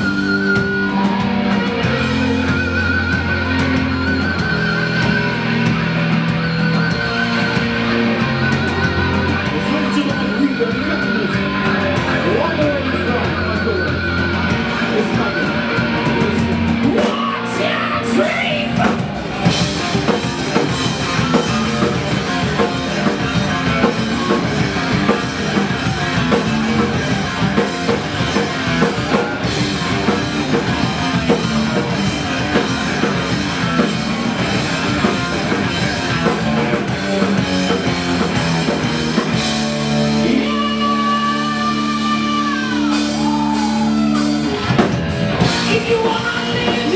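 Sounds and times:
drum kit: 0.0s - 46.9s
electric guitars: 0.0s - 46.9s
person singing: 40.0s - 44.4s, 45.4s - 46.9s.

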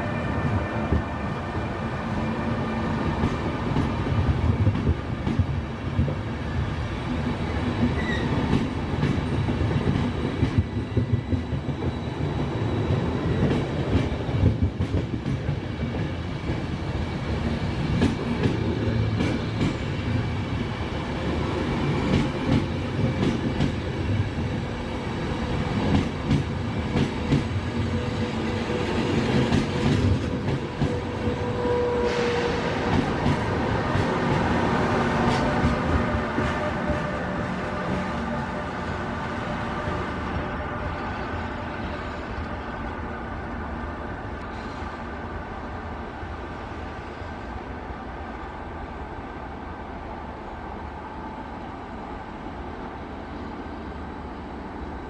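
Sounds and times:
electric locomotive whine: 0.0s - 55.0s
train wheels rumbling on rail: 0.0s - 55.0s.

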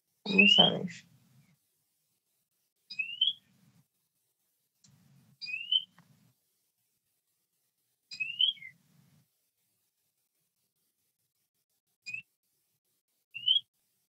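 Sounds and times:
bird whistling call: 2.9s - 3.4s, 5.4s - 5.9s, 8.1s - 8.8s, 13.4s - 13.6s.

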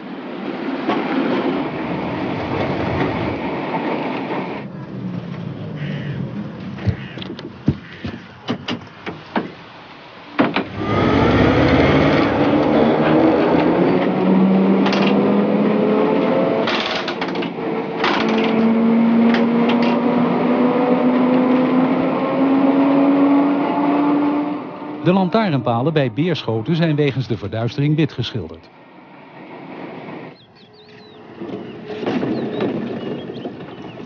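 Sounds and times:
tram rumble: 0.0s - 34.0s
traction motor whine: 10.6s - 21.7s
sharp clicks and knocks: 16.6s - 18.7s.

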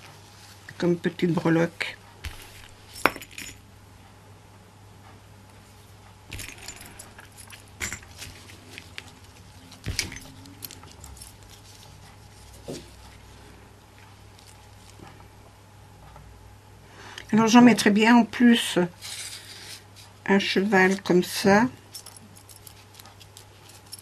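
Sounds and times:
metal rings and clasps jingling: 2.3s - 3.6s, 6.3s - 12.5s, 21.9s - 24.0s.

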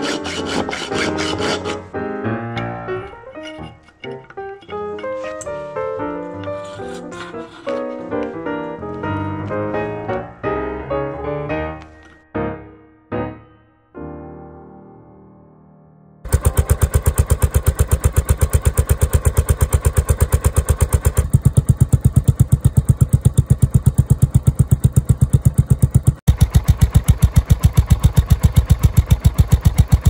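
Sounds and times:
motorcycle exhaust idling: 16.3s - 30.0s.

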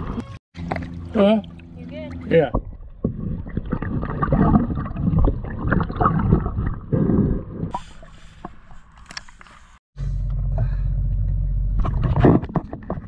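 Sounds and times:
underwater gurgling and bubbling: 2.6s - 7.7s.

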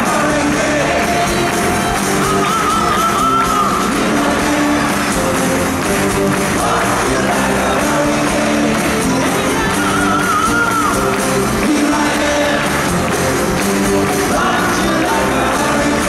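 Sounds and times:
men singing into microphones: 0.0s - 5.4s, 6.4s - 13.2s, 14.0s - 16.0s
acoustic rock band playing: 0.0s - 16.0s.

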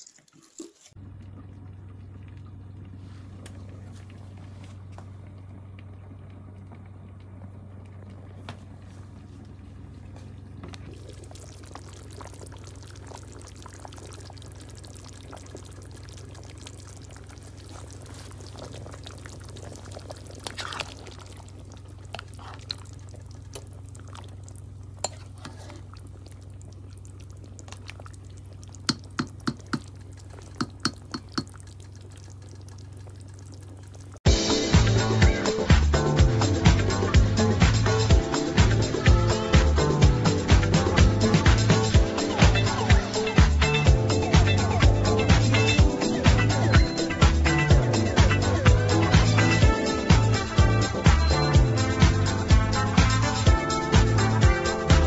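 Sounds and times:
liquid sloshing: 0.0s - 34.2s
steady low hum: 1.0s - 55.0s
spoon stirring soup: 11.0s - 34.0s.

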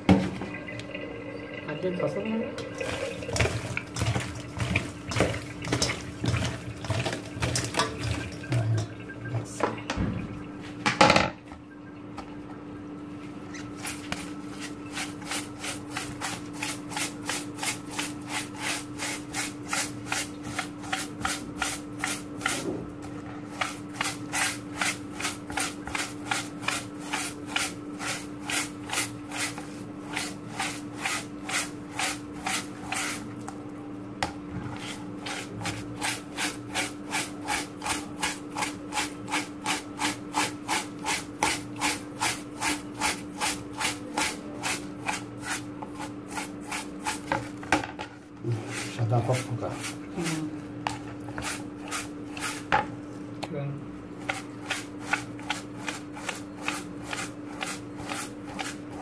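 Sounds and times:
steel wool scraping fish: 13.5s - 22.6s, 23.5s - 33.3s, 34.7s - 47.6s, 48.5s - 52.7s, 54.2s - 59.0s.

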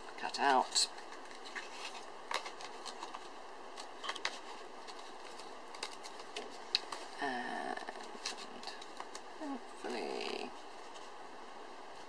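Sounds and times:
paper rustling: 0.3s - 7.2s, 7.8s - 9.3s, 9.9s - 11.2s.

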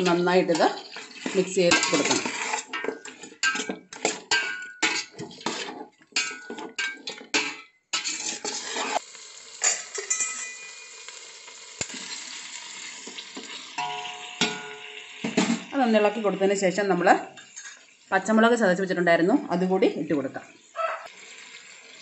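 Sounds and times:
meat sizzling in oil: 0.0s - 3.6s, 8.0s - 18.4s, 20.4s - 22.0s
metal spatula scraping pot: 0.0s - 9.0s, 9.6s - 11.2s, 17.2s - 18.0s.

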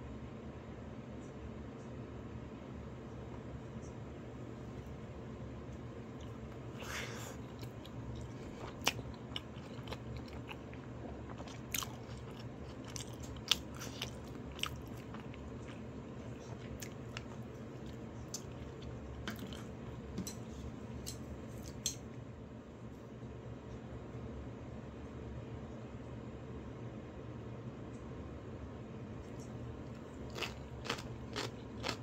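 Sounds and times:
steady low hum: 0.0s - 32.0s
person chewing crunchy food: 6.0s - 20.5s, 29.4s - 32.0s.

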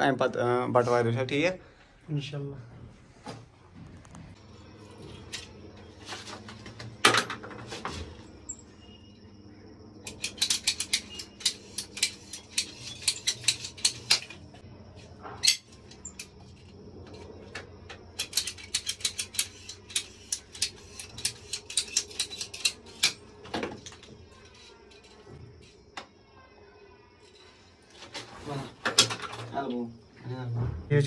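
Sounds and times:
metallic clicking of hand tool: 10.1s - 14.3s, 18.2s - 23.2s.

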